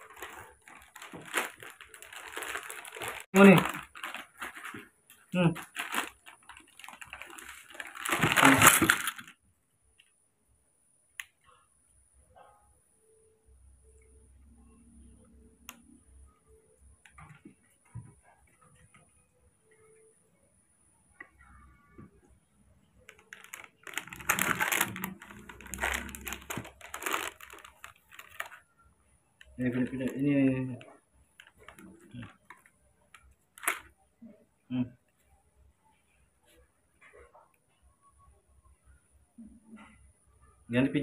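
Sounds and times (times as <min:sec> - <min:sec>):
crackling handling noise: 0:00.0 - 0:09.4, 0:23.0 - 0:28.7, 0:30.8 - 0:34.0
clicking and rustling handling noise: 0:30.8 - 0:33.9.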